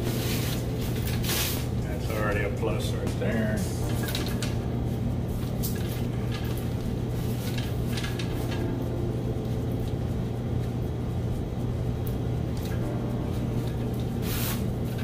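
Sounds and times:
fabric rustling and scraping: 0.0s - 1.8s, 5.3s - 8.7s, 14.2s - 15.0s
steady low hum: 0.0s - 15.0s.

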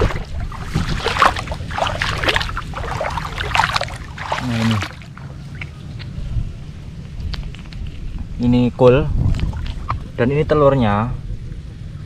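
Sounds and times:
water splashing and sloshing: 0.0s - 6.4s, 9.2s - 10.3s.

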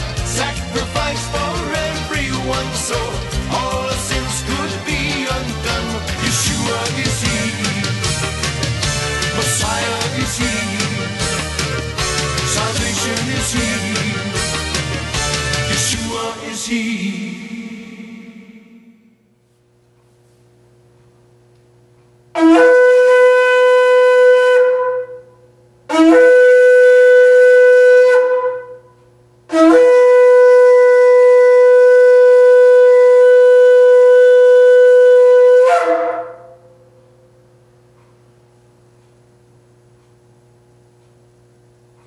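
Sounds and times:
shofar blasts: 22.3s - 28.9s, 29.5s - 37.3s.

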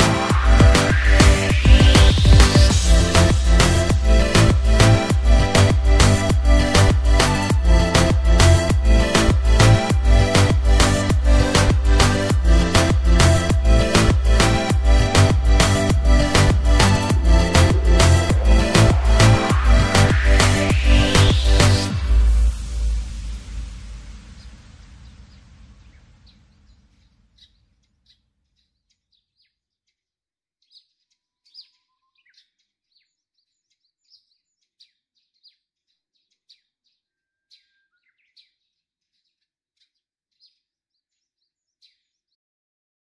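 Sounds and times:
electronic music: 0.0s - 26.0s
faint bird chirps: 30.7s - 32.6s, 37.0s - 38.5s.

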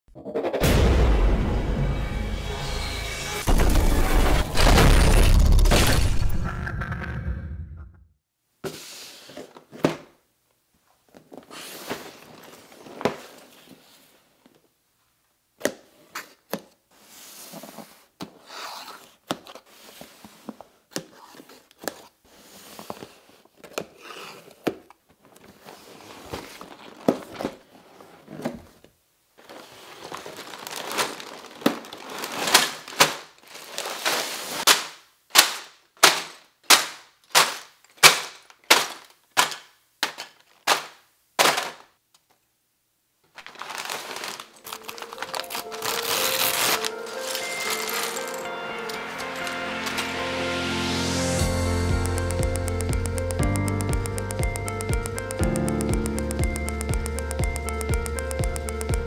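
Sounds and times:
paper rustling: 16.2s - 28.8s, 29.4s - 41.9s, 43.3s - 50.2s
bags slapping onto table: 30.4s - 41.9s
cardboard box handled: 43.4s - 46.8s.

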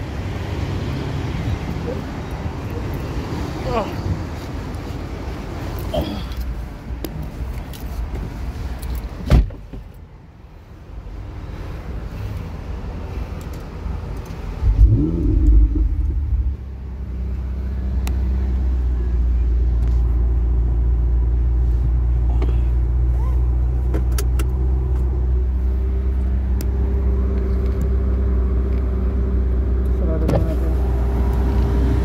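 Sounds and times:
sports car engine starting and revving: 14.6s - 18.7s.

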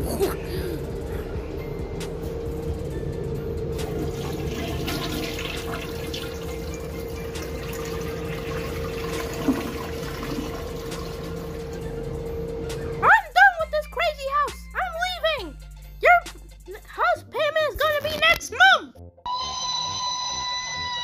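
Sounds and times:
toilet flushing: 3.7s - 12.2s.

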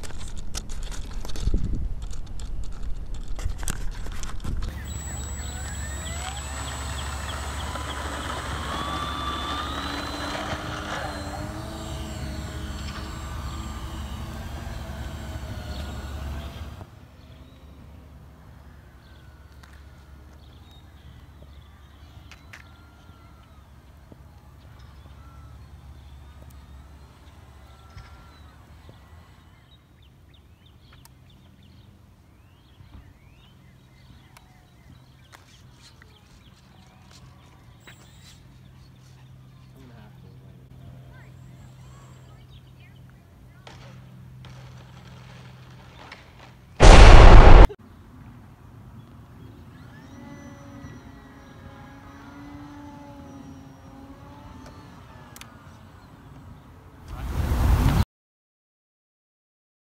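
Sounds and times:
low rumble of wind: 0.0s - 5.6s
model airplane motor whining: 4.6s - 17.0s, 21.2s - 29.8s, 49.6s - 56.4s
small birds chirping: 4.7s - 43.6s.

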